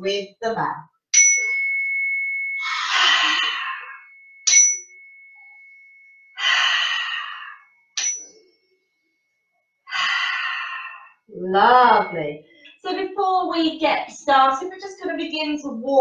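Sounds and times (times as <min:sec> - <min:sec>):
chime ringing: 0:01.2 - 0:08.8, 0:11.6 - 0:12.7.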